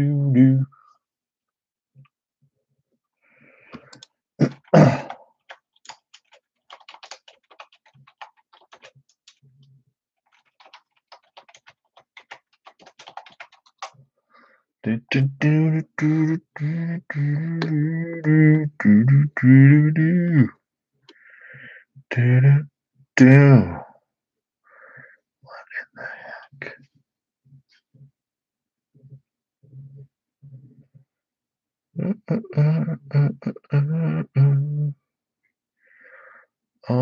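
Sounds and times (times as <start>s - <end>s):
person vocalizing rhythmically: 0.0s - 0.8s, 3.8s - 5.2s, 14.8s - 20.6s, 22.1s - 23.9s, 32.0s - 35.0s
keyboard typing clicks: 5.5s - 9.4s, 10.3s - 13.9s.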